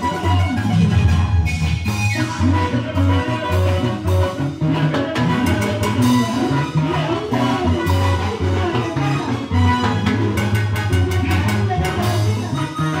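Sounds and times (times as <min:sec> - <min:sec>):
bouncing bass line: 0:00.0 - 0:13.0
drum kit with cymbals: 0:00.0 - 0:13.0
electronic keyboard lead: 0:00.0 - 0:13.0.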